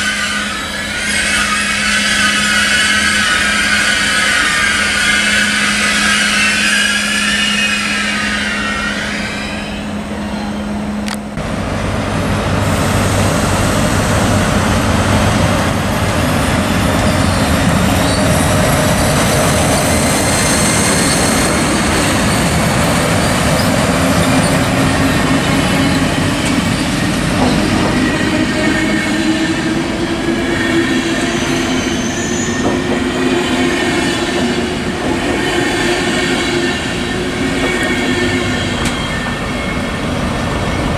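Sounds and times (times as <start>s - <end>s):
high wavering squeal: 0.0s - 10.9s, 16.2s - 34.7s, 35.5s - 40.9s
train rolling on rails: 0.0s - 40.9s.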